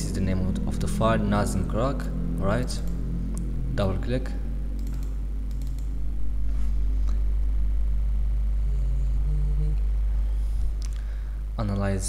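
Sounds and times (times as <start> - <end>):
low background hum: 0.0 - 12.0
faint clicks: 4.7 - 5.9.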